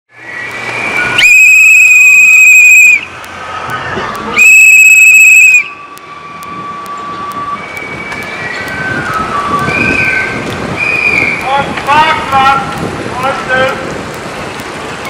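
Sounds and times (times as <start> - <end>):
whistle blasts: 0.2 - 3.2, 4.3 - 11.6.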